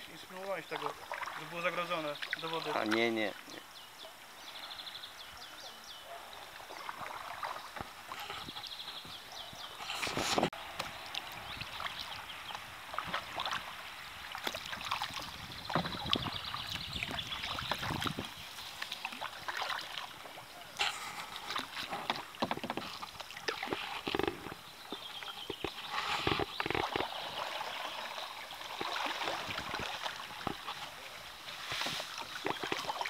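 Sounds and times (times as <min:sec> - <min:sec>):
kayak paddle splashing: 0:00.3 - 0:03.7, 0:06.4 - 0:33.0
water dripping off paddle: 0:00.7 - 0:03.6, 0:10.8 - 0:31.0, 0:31.8 - 0:33.0.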